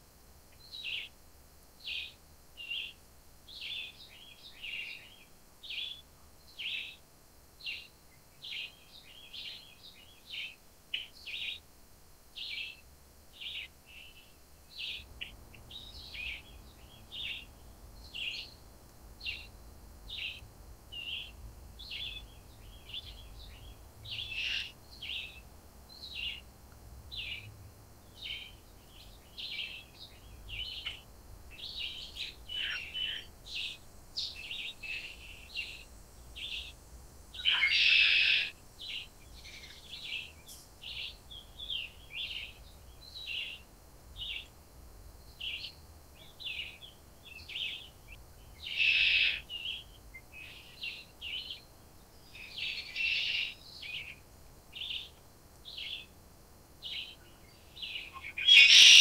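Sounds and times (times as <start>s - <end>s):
birds chirping: 13.4s - 18.6s, 19.2s - 26.5s, 27.1s - 44.6s, 45.2s - 56.1s, 56.8s - 59.0s.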